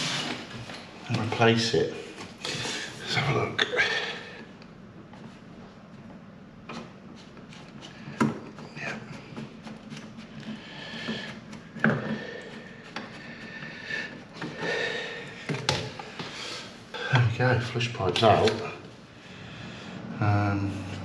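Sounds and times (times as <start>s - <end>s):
pipe rubbing and scraping: 0.0s - 0.7s, 6.7s - 17.0s.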